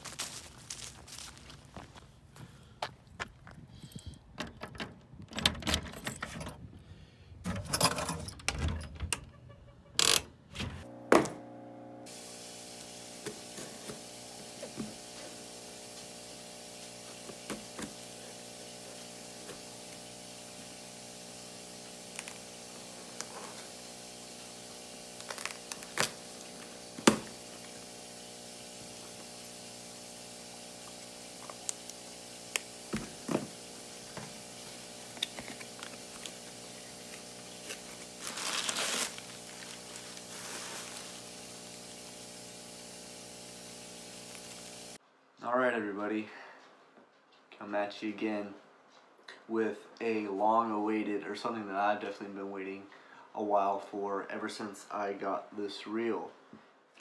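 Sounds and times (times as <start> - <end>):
key in metal mailbox lock: 4.4 - 6.6
steady hum: 10.7 - 45.0.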